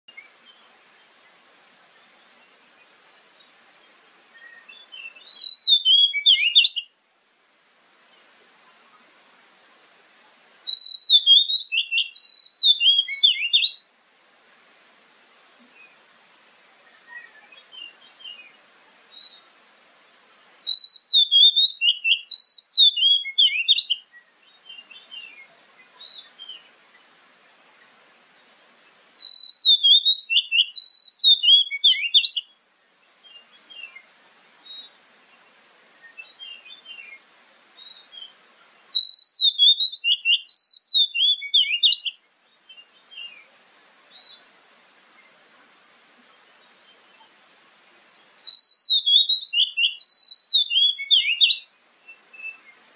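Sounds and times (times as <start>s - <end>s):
soft bird chirps: 0.1s - 7.0s, 10.2s - 14.0s, 16.7s - 19.6s, 20.3s - 52.9s
faint hiss: 0.1s - 52.9s
bird singing high phrases: 2.0s - 7.0s, 10.7s - 13.9s, 16.8s - 19.5s, 20.6s - 27.1s, 29.2s - 37.2s, 37.8s - 43.5s, 44.1s - 44.5s, 46.3s - 52.8s.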